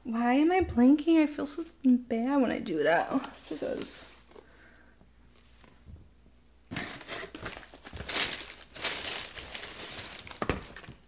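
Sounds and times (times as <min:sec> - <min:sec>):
packaging crinkling and rustling: 0:06.7 - 0:11.0.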